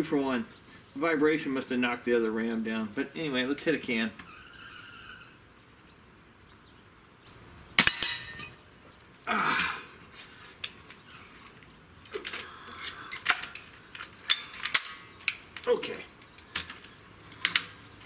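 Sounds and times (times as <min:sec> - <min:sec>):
rifle lever clicks and clacks: 0:12.1 - 0:17.8.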